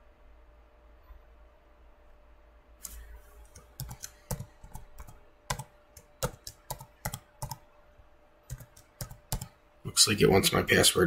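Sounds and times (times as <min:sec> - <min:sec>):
typing on computer keyboard: 0:03.5 - 0:07.6, 0:08.5 - 0:09.6.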